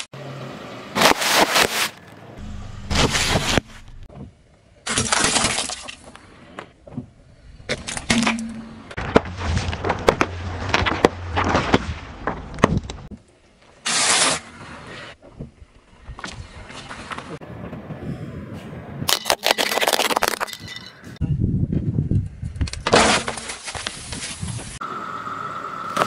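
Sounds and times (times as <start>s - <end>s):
tyre crushing plastic bags: 19.1s - 20.6s.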